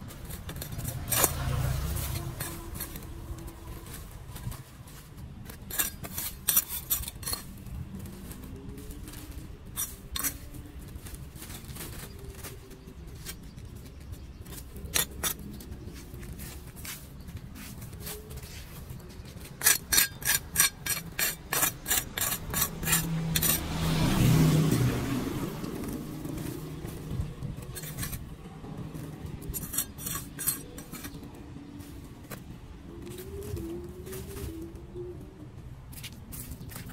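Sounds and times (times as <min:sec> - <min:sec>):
vehicle passing: 0:00.0 - 0:05.1, 0:21.4 - 0:36.9
leaves scraping and rustling on grate: 0:00.0 - 0:36.9.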